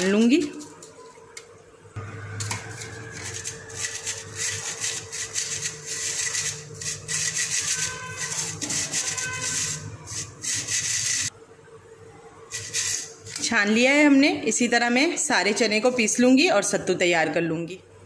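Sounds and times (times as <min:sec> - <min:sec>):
gritty rasping on mesh sieve: 0:03.1 - 0:11.3, 0:12.5 - 0:13.4.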